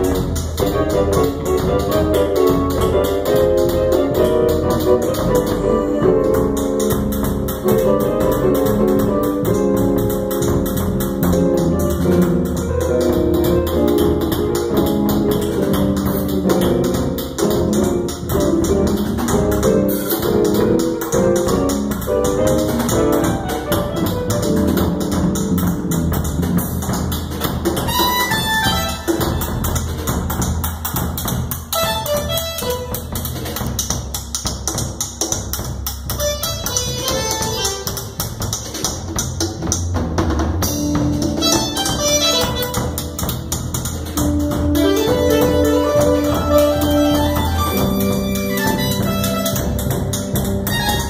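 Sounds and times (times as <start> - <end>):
fast percussion pattern: 0.0 - 51.0
keyboard chords: 40.6 - 51.0.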